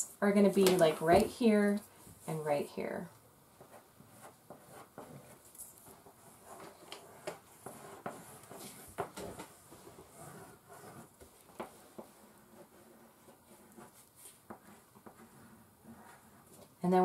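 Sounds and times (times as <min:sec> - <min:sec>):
crayons sketching on paper: 0:03.6 - 0:17.0.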